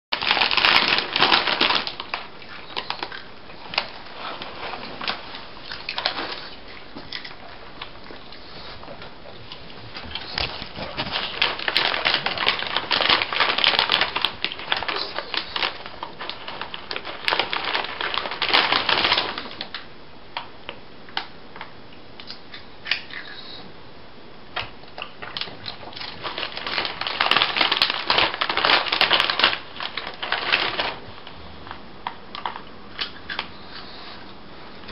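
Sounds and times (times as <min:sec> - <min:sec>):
plastic snack bag crinkling: 0:00.1 - 0:19.9, 0:25.0 - 0:31.8.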